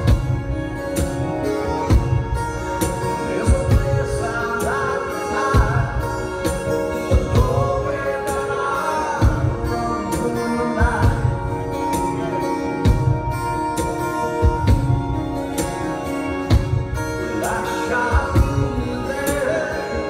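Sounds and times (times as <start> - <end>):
bowed violin: 0.0 - 20.0
strummed acoustic guitars: 0.0 - 20.0
man singing: 2.8 - 13.3, 17.0 - 20.0.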